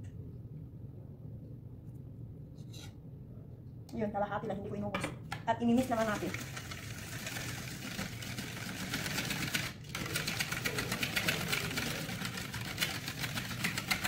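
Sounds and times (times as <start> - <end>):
whisk wires clicking on metal bowl: 8.7 - 14.0.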